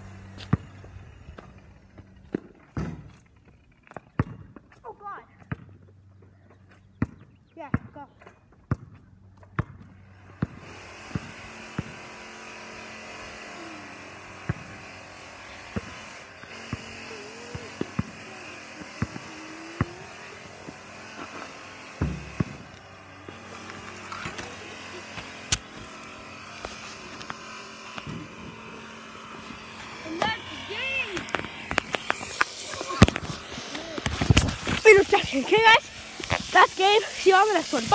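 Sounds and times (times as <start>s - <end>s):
basketball bouncing and hitting hoop: 0.2s - 3.3s, 3.9s - 4.8s, 5.4s - 6.0s, 7.0s - 12.6s, 14.0s - 30.4s, 31.1s - 35.7s
steady mechanical whine: 10.1s - 37.9s.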